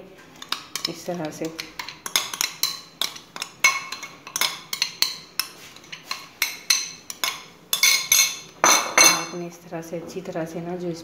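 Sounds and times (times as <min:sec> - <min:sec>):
metal spoon clinking on glass bowl: 0:00.4 - 0:09.4.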